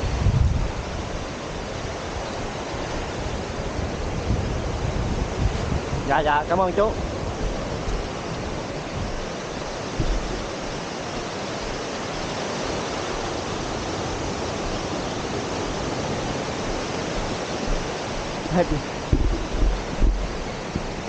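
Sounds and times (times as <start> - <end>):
surf breaking on beach: 0.0 - 21.0
wind on microphone: 0.0 - 21.0
low knock: 10.0 - 10.4, 19.1 - 20.9.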